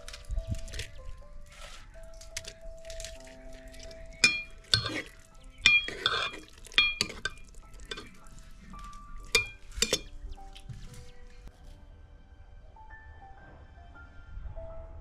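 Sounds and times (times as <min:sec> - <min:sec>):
liquid sloshing: 0:02.4 - 0:10.1
ladle clinking against pot: 0:04.2 - 0:08.2, 0:09.2 - 0:10.2.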